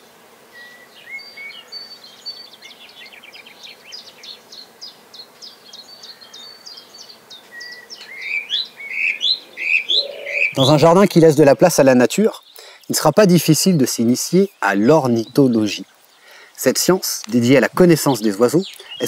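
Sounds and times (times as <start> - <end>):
songbirds chirping and trilling: 0.0 - 19.0.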